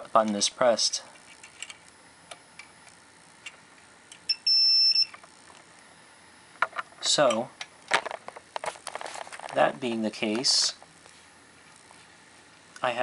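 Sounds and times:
continuity tester beep: 4.2s - 5.2s.

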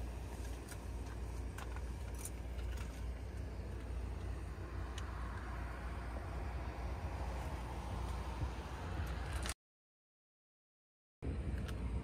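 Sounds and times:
distant road traffic rumble: 0.0s - 9.6s, 11.2s - 12.0s.

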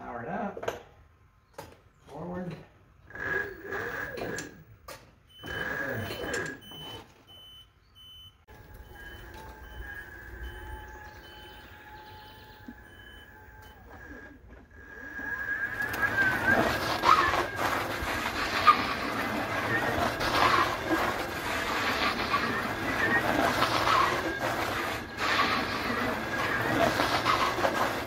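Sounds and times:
electric mower whine: 3.0s - 7.2s, 8.5s - 28.0s
faint rapid beeping: 5.3s - 28.0s.

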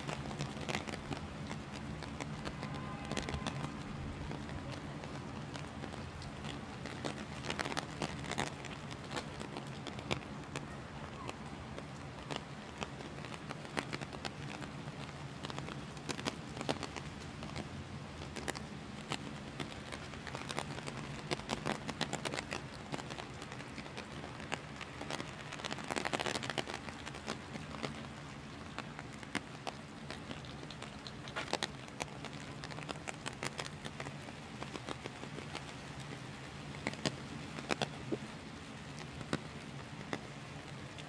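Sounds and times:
heavy rain: 0.0s - 41.0s
low city hum: 0.0s - 41.0s.

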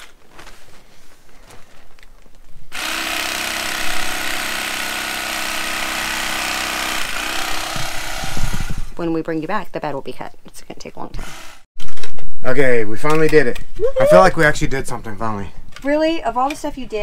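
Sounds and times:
electric carving knife buzzing: 2.8s - 8.6s.

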